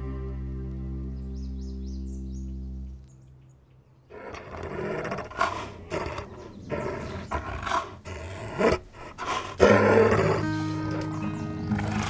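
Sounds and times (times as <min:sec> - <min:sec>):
large animal roaring and growling: 0:04.1 - 0:11.1, 0:11.7 - 0:12.0.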